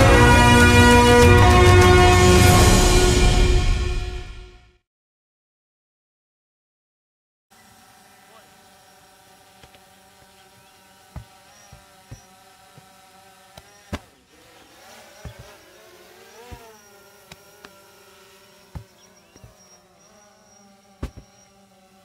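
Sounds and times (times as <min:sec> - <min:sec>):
medicine balls thudding on turf: 0:21.0 - 0:21.3.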